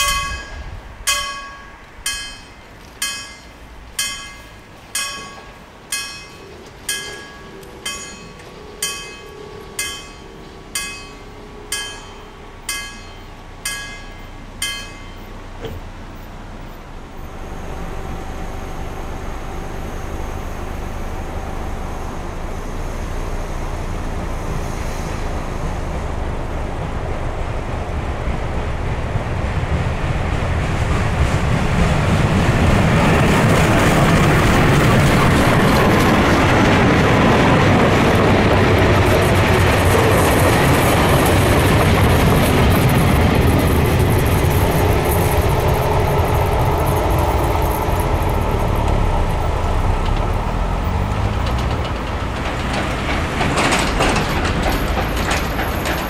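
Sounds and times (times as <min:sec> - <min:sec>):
level-crossing warning bell: 0:00.0 - 0:16.0, 0:17.1 - 0:24.1
steam locomotive rumble: 0:00.0 - 0:56.0.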